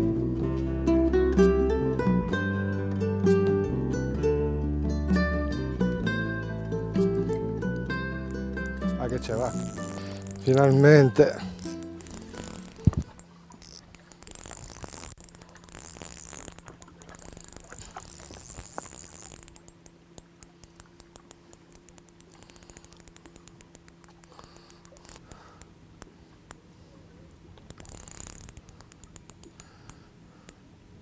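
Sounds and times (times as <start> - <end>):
fishing reel clicking: 8.0 - 26.6, 27.6 - 30.0.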